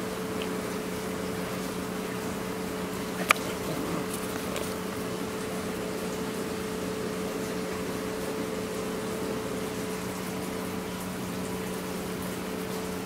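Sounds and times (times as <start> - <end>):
steady hum: 0.0 - 13.0.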